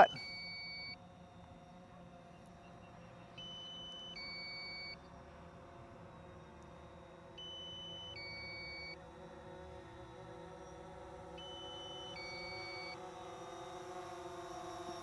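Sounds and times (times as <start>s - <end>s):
two-tone warning beeps: 0.0s - 0.9s, 3.5s - 5.0s, 7.4s - 9.0s, 11.5s - 13.0s.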